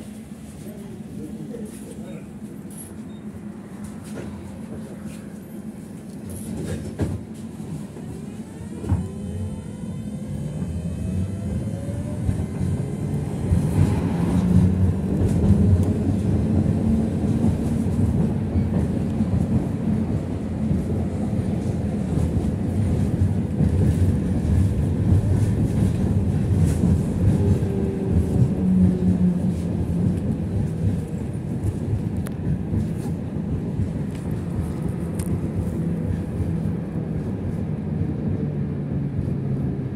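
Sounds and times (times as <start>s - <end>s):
tram motor whine rising: 8.3s - 16.7s.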